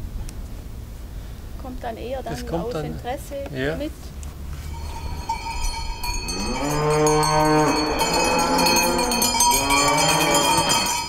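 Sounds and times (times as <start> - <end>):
cowbells ringing and clanking: 4.6 - 11.0
cow mooing: 4.7 - 11.0.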